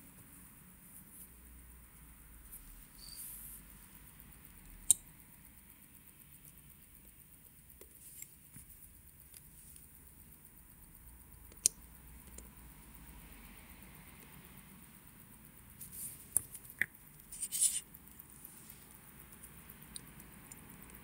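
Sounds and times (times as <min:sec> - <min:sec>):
faint hiss: 0:00.0 - 0:21.0
tweezers clicking on watch parts: 0:04.6 - 0:05.1, 0:11.4 - 0:12.5.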